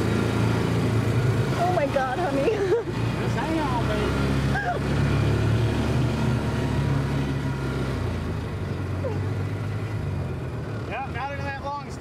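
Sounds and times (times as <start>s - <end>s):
vehicle engine running: 0.0s - 12.0s.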